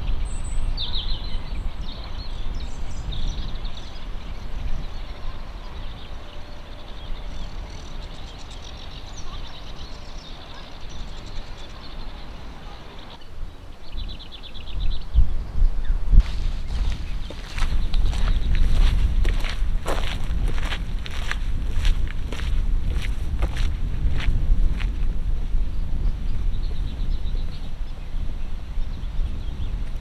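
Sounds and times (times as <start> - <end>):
small birds singing: 0.0 - 30.0
wind rumble on microphone: 0.0 - 30.0
footsteps on path: 16.2 - 25.2.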